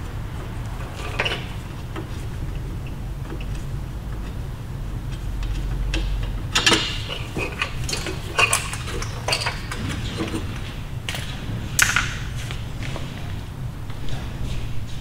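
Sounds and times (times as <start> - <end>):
low steady hum: 0.0 - 15.0
metal tools and parts clanking: 0.8 - 2.2, 5.8 - 10.6.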